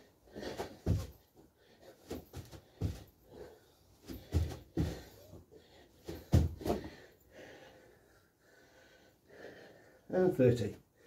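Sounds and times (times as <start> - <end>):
man breathing hard: 0.0 - 10.1
thuds on floor mat: 6.1 - 7.0.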